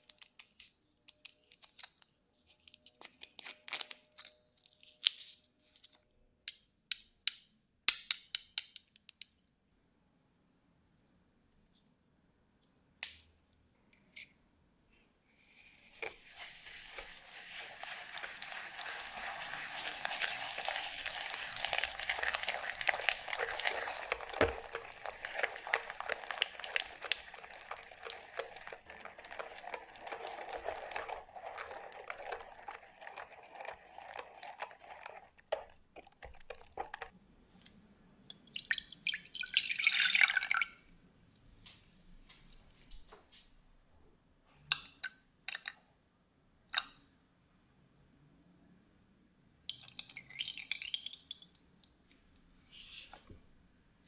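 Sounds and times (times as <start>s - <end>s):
whisk scraping glass bowl: 15.6s - 37.1s
milk pouring into saucepan: 15.9s - 37.1s, 38.5s - 43.0s, 49.7s - 52.0s.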